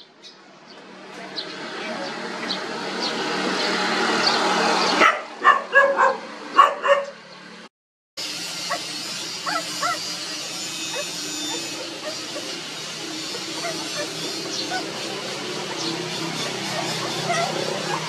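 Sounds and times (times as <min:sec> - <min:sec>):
dog barking: 0:05.0 - 0:07.2, 0:08.7 - 0:12.6, 0:13.2 - 0:15.1, 0:15.7 - 0:18.0
puppies whimpering: 0:08.6 - 0:18.0.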